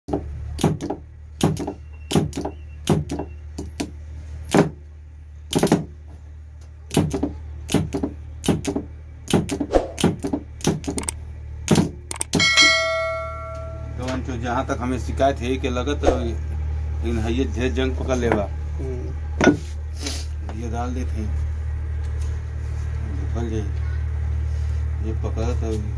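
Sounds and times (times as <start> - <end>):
steady low hum: 7.5 - 14.5
small metal parts clicking: 10.8 - 11.2, 12.0 - 12.4.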